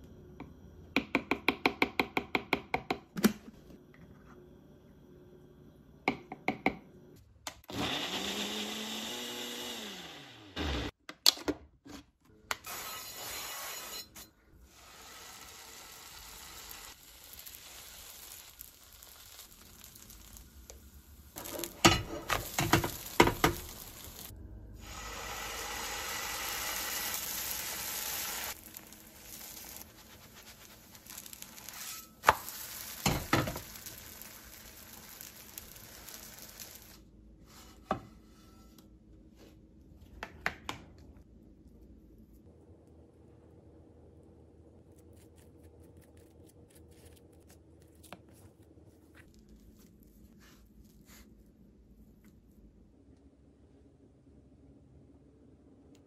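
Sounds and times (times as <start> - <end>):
blender motor running: 7.7 - 10.9
utensils clicking on frying pan: 21.4 - 24.3.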